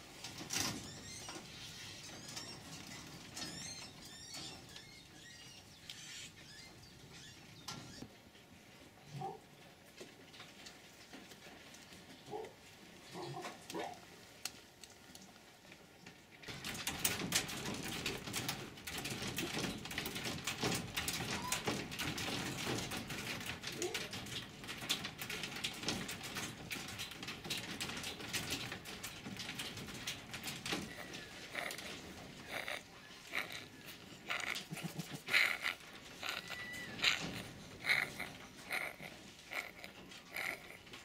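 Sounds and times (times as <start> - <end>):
clicking and rattling on cage wire: 0.0 - 8.1, 16.0 - 41.0
foxes whining and crying: 30.9 - 40.9.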